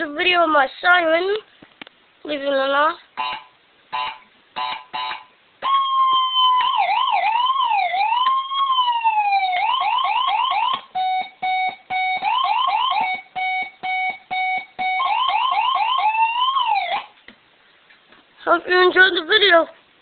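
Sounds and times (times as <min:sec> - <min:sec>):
electronic police siren: 0:03.2 - 0:17.1
steady beeps: 0:11.0 - 0:12.2, 0:13.0 - 0:15.1.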